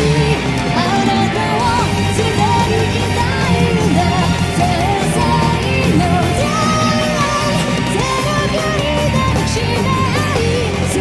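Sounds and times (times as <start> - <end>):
distorted electric guitars: 0.0 - 11.0
drums: 0.0 - 11.0
lead vocalist singing: 0.0 - 11.0.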